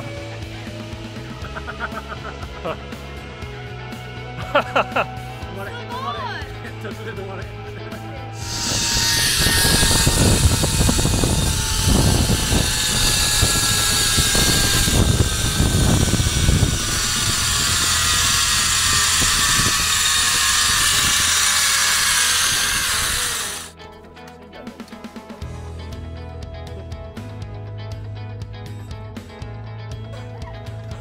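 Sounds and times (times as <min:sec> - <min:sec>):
wind buffeting microphone: 0:08.4 - 0:23.5
zipline pulleys whining on cable: 0:08.4 - 0:23.7.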